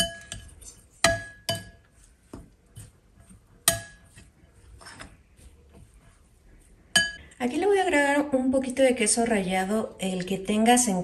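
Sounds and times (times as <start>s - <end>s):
metal spoon scraping glass bowl: 0.0s - 2.0s.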